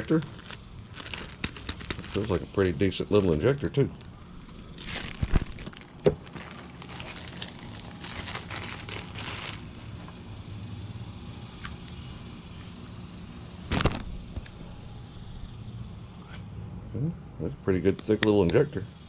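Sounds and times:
plastic packaging crinkling: 0:00.0 - 0:10.2, 0:13.7 - 0:14.1
steady low hum: 0:00.0 - 0:19.0.

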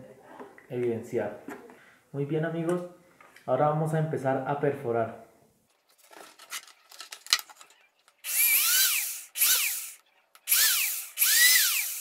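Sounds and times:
electric drill whining: 0:08.2 - 0:12.0.

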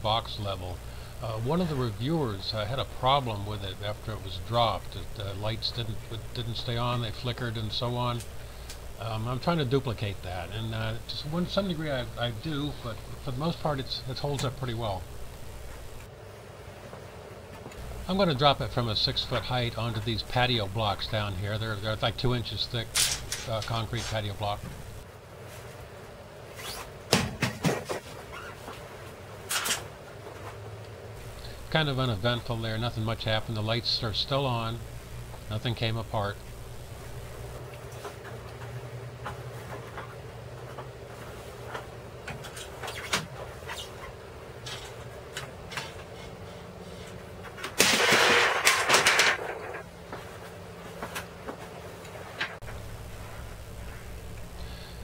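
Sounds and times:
level clattering on concrete: 0:47.8 - 0:49.4.

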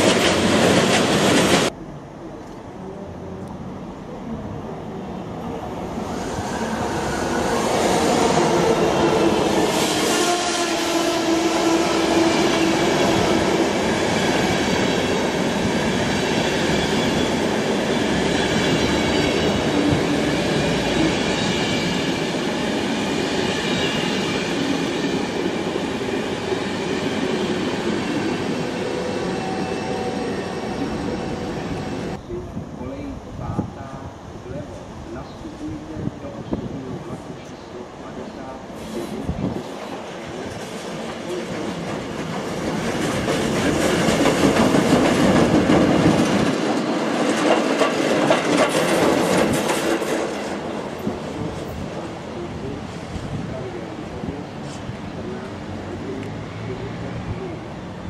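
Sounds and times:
train wheels rumbling on rails: 0:00.0 - 0:01.8, 0:38.1 - 0:57.6.

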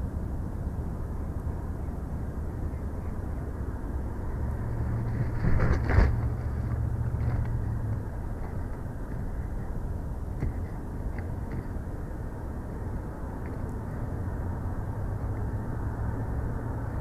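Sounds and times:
steady low rumble: 0:00.0 - 0:17.0
eagle wingbeats: 0:05.0 - 0:12.2.

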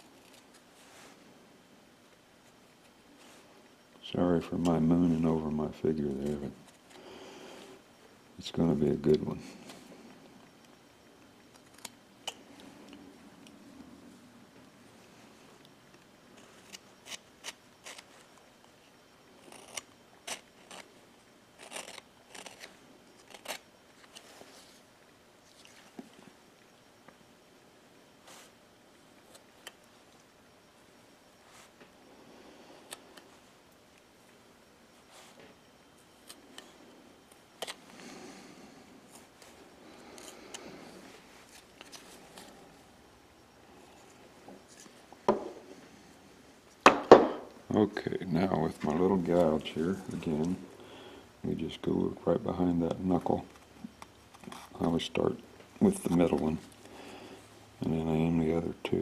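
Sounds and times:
knife carving wood: 0:16.4 - 0:18.3, 0:19.4 - 0:21.0, 0:21.6 - 0:24.2.

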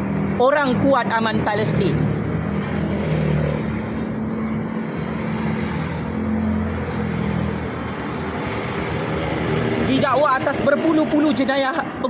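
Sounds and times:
road traffic noise: 0:00.0 - 0:12.0
vehicle engine hum: 0:00.0 - 0:12.0.

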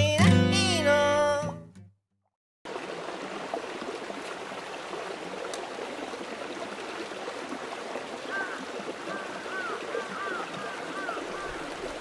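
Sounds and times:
running water rushing: 0:02.7 - 0:12.0.

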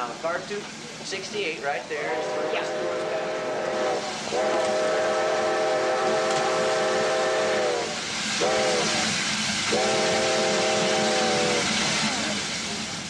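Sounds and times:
hiss of escaping steam: 0:00.0 - 0:13.0
steam whistle chord: 0:02.0 - 0:11.8.

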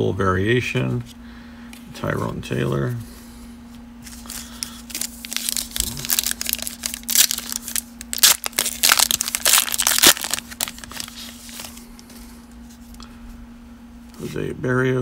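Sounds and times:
cards pulled out of wrapper: 0:04.0 - 0:12.1
foil wrapper crinkling and tearing: 0:04.1 - 0:12.0.

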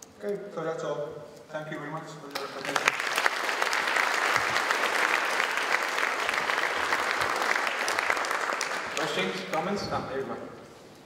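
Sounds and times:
audience applauding: 0:02.3 - 0:09.9.

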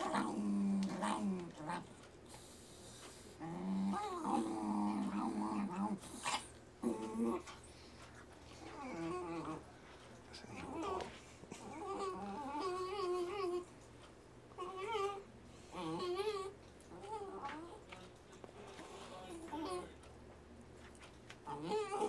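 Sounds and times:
small dog growling: 0:00.0 - 0:13.8, 0:14.5 - 0:18.0, 0:18.6 - 0:20.0, 0:21.4 - 0:22.0.

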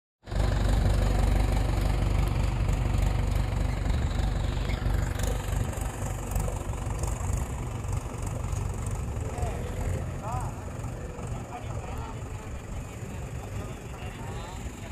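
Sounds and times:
diesel tractor engine idling: 0:00.2 - 0:14.9.

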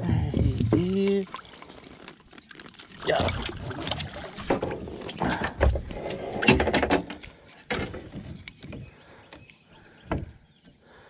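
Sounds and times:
fish handling knocks and rustling: 0:06.6 - 0:09.4.

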